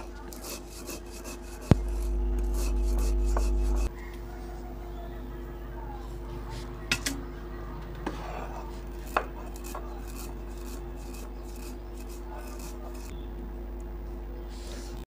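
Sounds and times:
stone roller grinding seeds: 0:00.0 - 0:03.9, 0:08.0 - 0:13.2.

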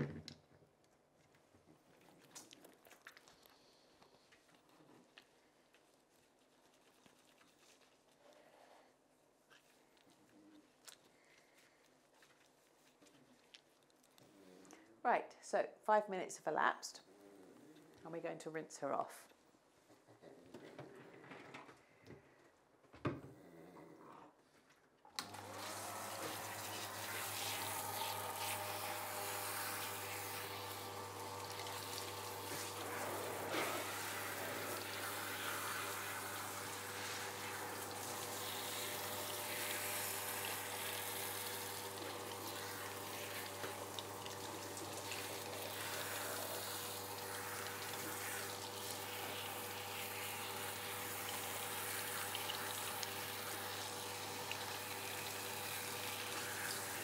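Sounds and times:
shower water spraying: 0:25.2 - 0:57.0.

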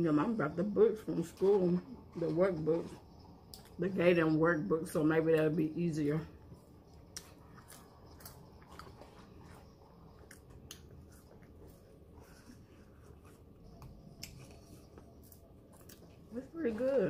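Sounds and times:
low room hum: 0:00.0 - 0:17.0
chewing food: 0:01.3 - 0:03.8, 0:06.4 - 0:17.0.

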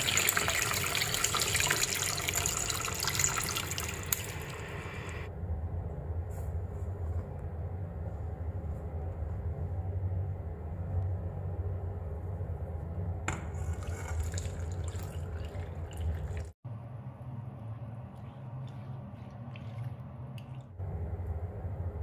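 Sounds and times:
water pouring into pan: 0:00.0 - 0:05.3, 0:13.4 - 0:16.6
steady low hum: 0:04.2 - 0:22.0
scraping and handling in saucepan: 0:13.3 - 0:16.4.

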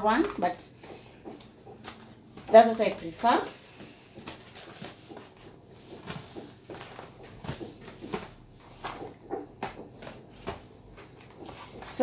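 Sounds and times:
cardboard boxes tapping and knocking: 0:00.0 - 0:12.0
packaging rustling: 0:03.6 - 0:12.0.

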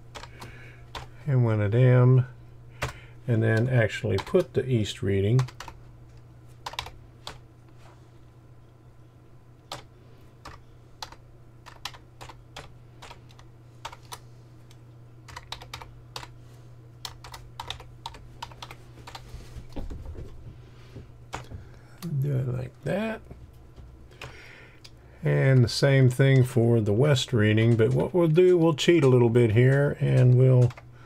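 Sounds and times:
steady low hum: 0:00.0 - 0:31.0
computer keyboard typing: 0:00.1 - 0:01.1, 0:03.6 - 0:04.5, 0:05.4 - 0:05.8, 0:06.6 - 0:07.4, 0:09.7 - 0:14.2, 0:15.3 - 0:16.4, 0:17.0 - 0:19.2, 0:27.5 - 0:30.9.

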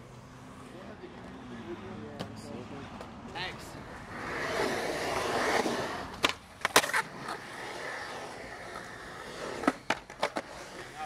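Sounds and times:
skateboard wheels rolling on concrete: 0:00.0 - 0:11.0
skateboard clacking on ground: 0:05.4 - 0:07.4, 0:09.5 - 0:11.0.

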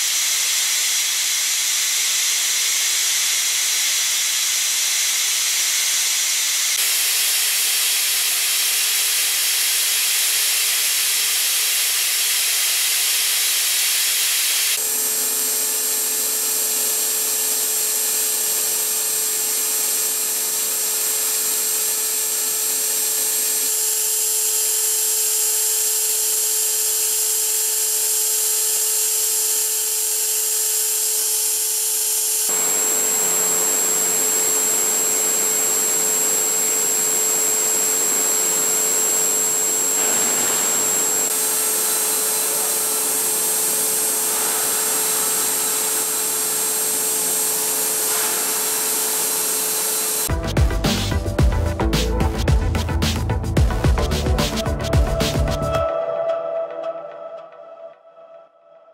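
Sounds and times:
machine spindle high hiss: 0:00.0 - 0:50.3.

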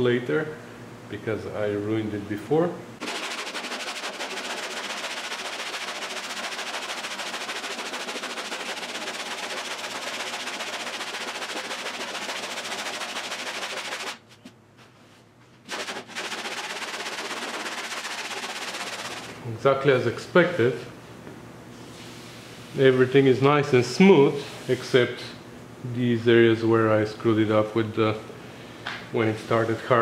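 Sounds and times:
sandpaper scraping body filler: 0:03.0 - 0:14.2, 0:15.7 - 0:19.4.

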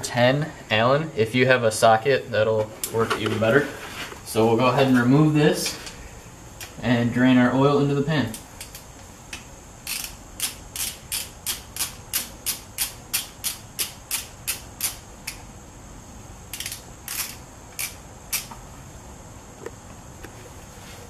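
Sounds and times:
hand tool clicking: 0:09.8 - 0:15.4, 0:16.5 - 0:18.5.

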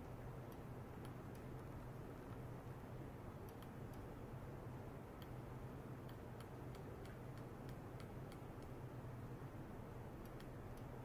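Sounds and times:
faint high ticks: 0:00.0 - 0:01.7, 0:03.4 - 0:04.1, 0:05.2 - 0:05.4, 0:06.0 - 0:08.8, 0:10.2 - 0:11.0
steady low hum: 0:00.0 - 0:11.0.

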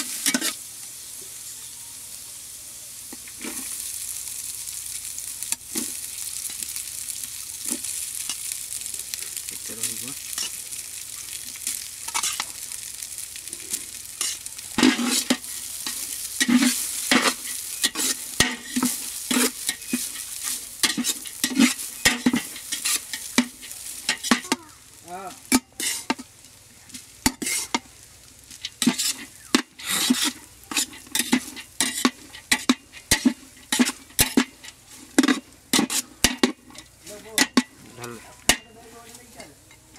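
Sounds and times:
metal spatula scraping a pot: 0:00.0 - 0:00.6, 0:10.2 - 0:10.6, 0:11.6 - 0:12.5, 0:13.5 - 0:24.5, 0:25.4 - 0:26.3, 0:27.2 - 0:27.9, 0:28.6 - 0:39.9
vegetables sizzling in a pot: 0:00.0 - 0:39.9.

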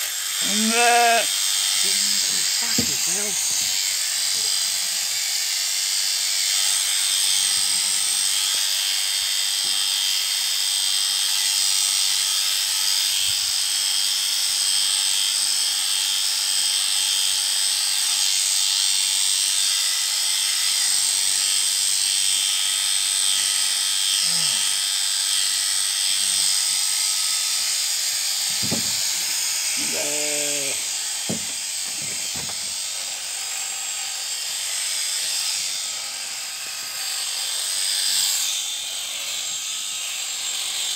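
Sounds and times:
electric shears buzzing: 0:00.0 - 0:40.9.

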